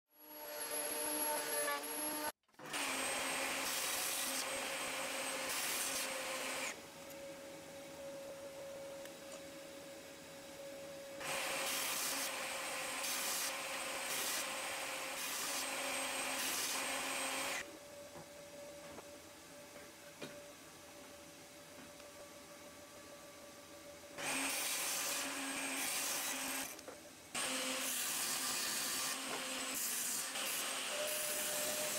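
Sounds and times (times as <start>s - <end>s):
saw blade cutting wood: 24.2s - 26.8s, 27.4s - 31.9s.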